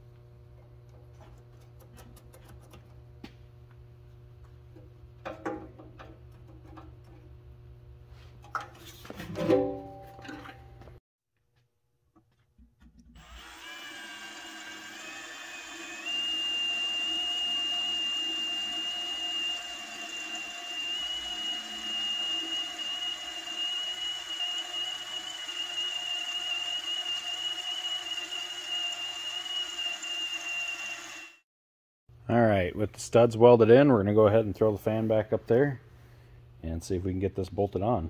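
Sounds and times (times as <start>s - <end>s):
cordless drill whining: 13.1s - 31.4s.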